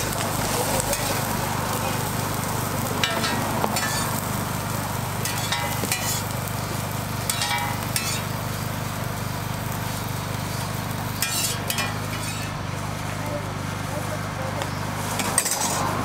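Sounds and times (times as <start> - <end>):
toast frying sizzle: 0.0 - 16.0
metal spatula scraping griddle: 0.4 - 1.3, 3.0 - 4.6, 5.2 - 8.7, 9.9 - 12.6, 15.0 - 16.0.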